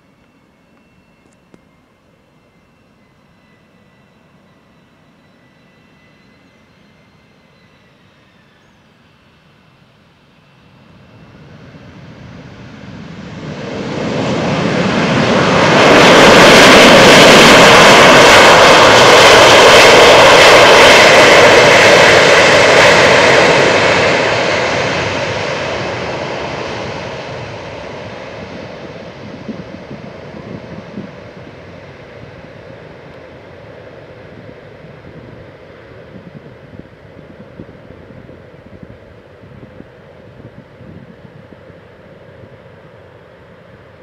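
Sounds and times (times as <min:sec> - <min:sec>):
jet airliner rolling on runway: 0:00.0 - 0:44.0.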